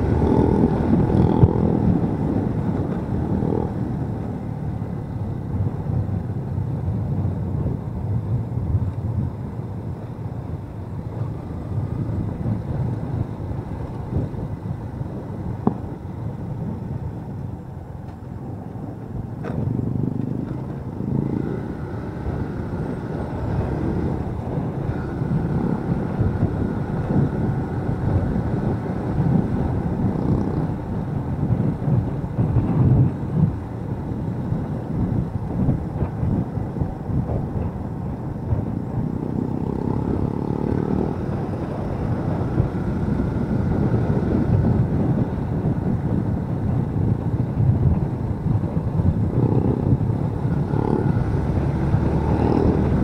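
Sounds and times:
motorcycle engine running: 0:00.0 - 0:08.8, 0:19.4 - 0:53.0
wind rush on microphone: 0:00.0 - 0:53.0.

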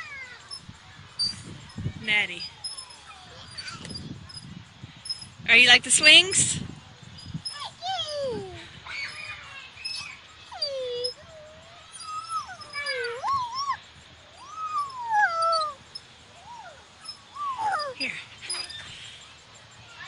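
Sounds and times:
toddler squealing and cooing: 0:07.4 - 0:13.8, 0:14.4 - 0:15.8, 0:16.4 - 0:18.8.

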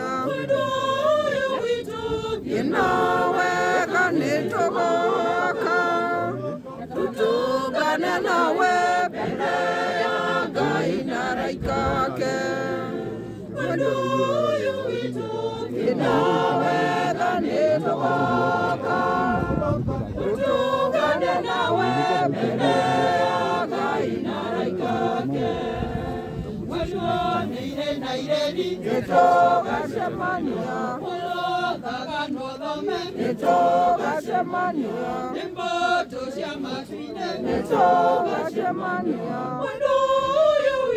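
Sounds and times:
crowd singing in chorus: 0:00.0 - 0:40.9.

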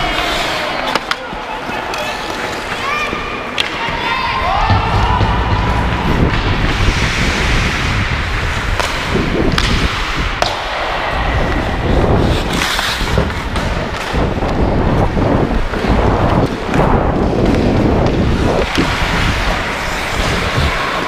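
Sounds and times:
hockey sticks clacking on puck: 0:00.0 - 0:04.1, 0:08.7 - 0:10.8, 0:11.5 - 0:14.6
skates scraping ice: 0:00.0 - 0:21.0
wind rumble on microphone: 0:04.6 - 0:21.0.

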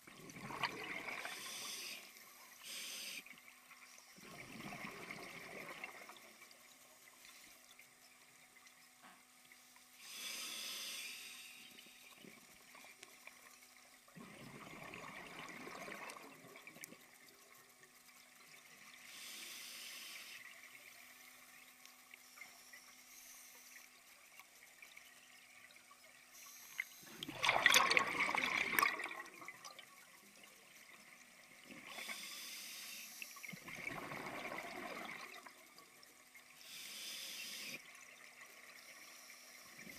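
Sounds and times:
regulator hissing inhale: 0:01.3 - 0:03.4, 0:10.0 - 0:12.1, 0:19.0 - 0:20.5, 0:22.3 - 0:23.9, 0:31.9 - 0:33.6, 0:36.6 - 0:37.8
bubbling exhaust underwater: 0:14.2 - 0:16.9, 0:27.1 - 0:29.9, 0:33.4 - 0:35.6.

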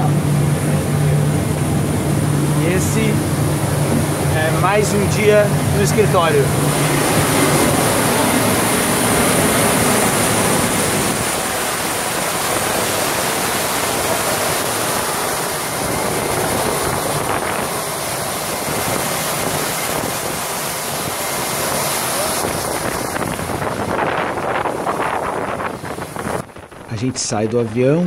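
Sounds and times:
jet engine rush and whine: 0:00.0 - 0:28.0
wind on microphone: 0:00.0 - 0:28.0.

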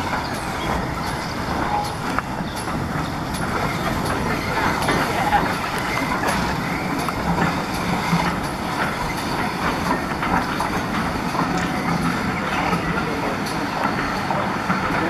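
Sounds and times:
train rumbling: 0:00.0 - 0:15.0
wheels clicking and clanking on rails: 0:00.0 - 0:15.0.

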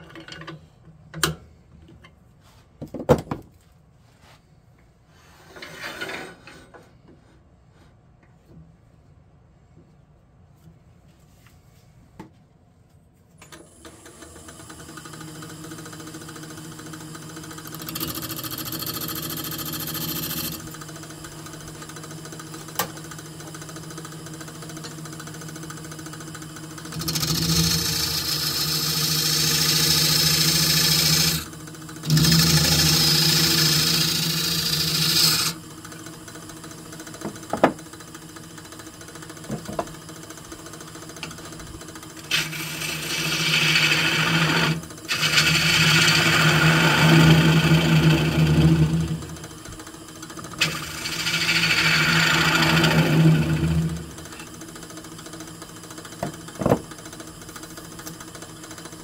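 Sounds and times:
wood lathe humming: 0:14.0 - 0:59.0
turning tool cutting wood: 0:14.5 - 0:40.0, 0:40.9 - 0:55.3.

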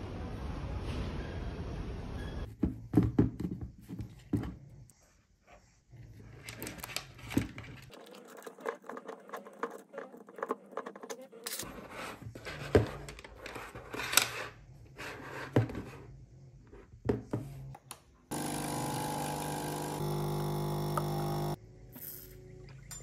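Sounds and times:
coffee machine pump buzzing: 0:18.3 - 0:21.6.

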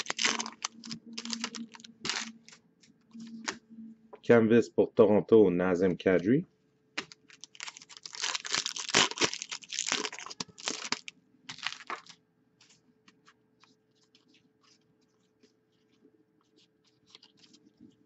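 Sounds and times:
foil wrapper tearing and crinkling: 0:00.0 - 0:02.6, 0:07.0 - 0:12.2.

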